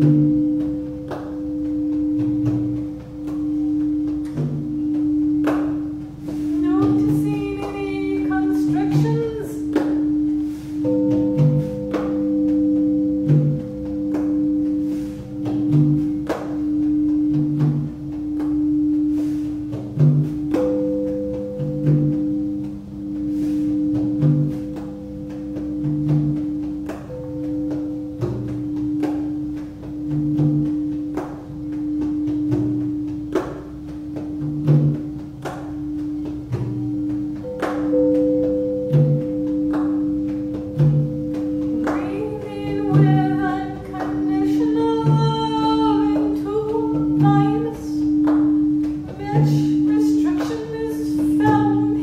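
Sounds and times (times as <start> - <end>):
crystal singing bowls ringing: 0.0 - 32.6, 36.9 - 52.0
soft low percussion thumps: 0.0 - 52.0
mallet strike clicks: 23.9 - 51.7.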